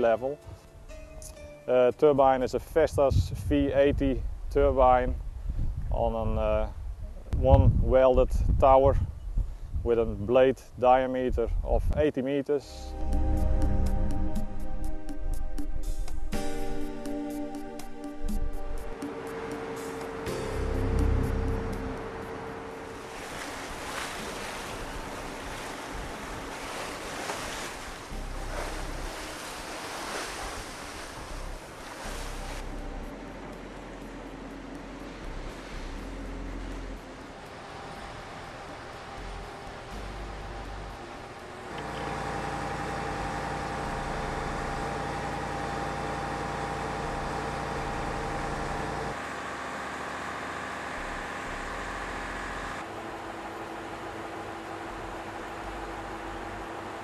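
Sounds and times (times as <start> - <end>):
strong wind buffeting microphone: 2.8 - 12.0
heavy machinery engines humming: 12.7 - 57.0
waves washing: 18.9 - 39.9.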